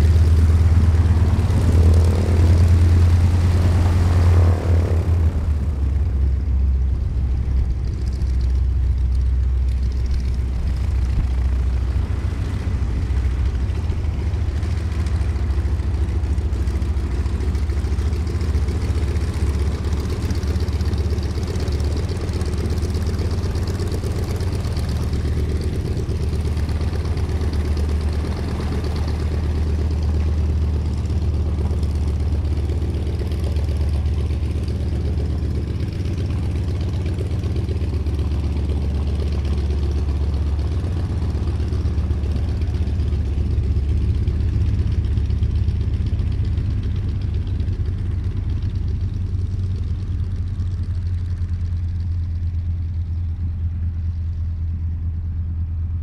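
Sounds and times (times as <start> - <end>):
radial aircraft engine rumbling: 0.0 - 56.0.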